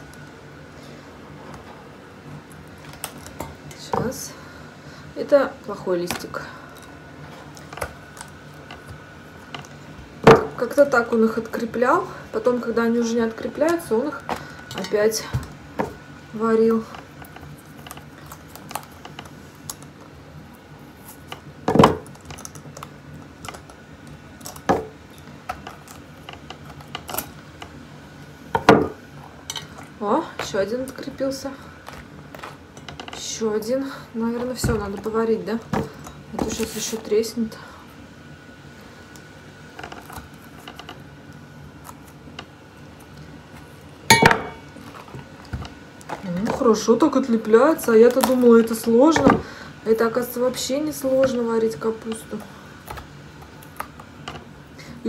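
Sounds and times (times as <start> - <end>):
utensils clinking against a pot: 44.1 - 44.6.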